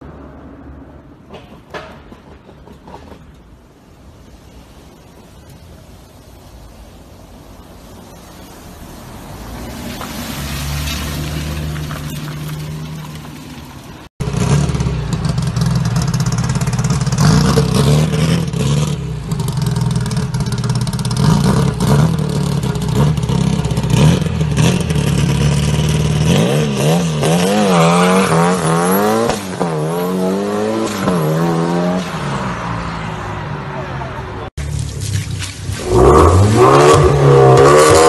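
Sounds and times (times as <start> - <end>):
car engine revving: 35.6 - 38.0.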